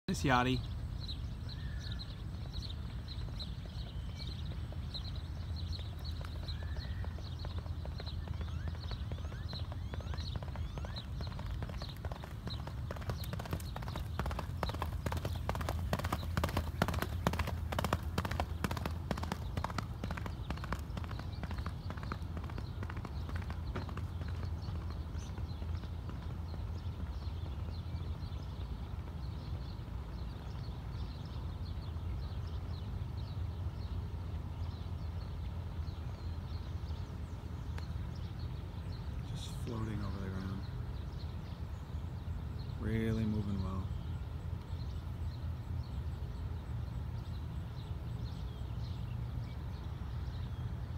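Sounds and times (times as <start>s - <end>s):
birds chirping: 0.0s - 50.9s
horse galloping on dirt: 1.7s - 33.9s.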